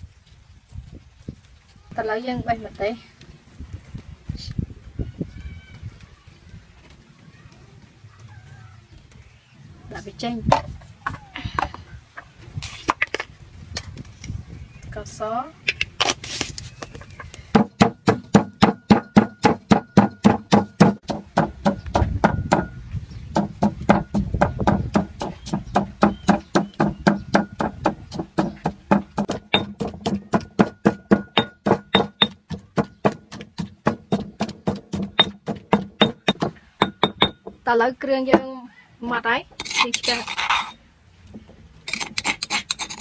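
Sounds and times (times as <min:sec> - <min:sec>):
stone pestle pounding in mortar: 0:17.6 - 0:37.6.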